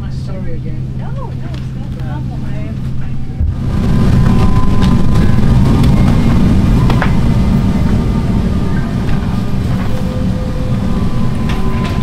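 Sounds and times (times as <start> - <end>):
aircraft cabin rumble: 0.0 - 12.0.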